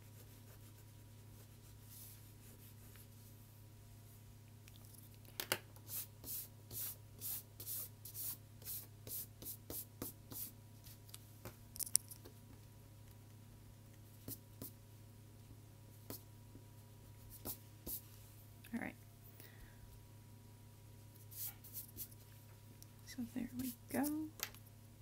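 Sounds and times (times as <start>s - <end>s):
eraser rubbing on paper: 5.9s - 11.0s, 21.2s - 22.1s.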